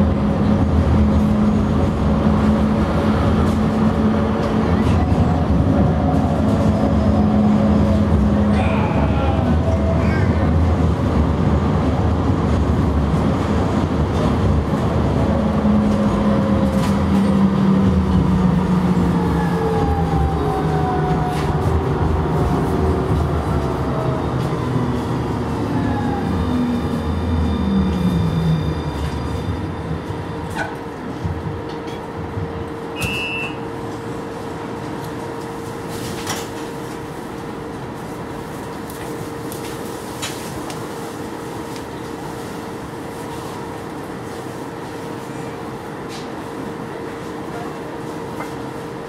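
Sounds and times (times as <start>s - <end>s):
tram motors whining: 0.0s - 38.8s
short beep: 33.0s - 33.7s.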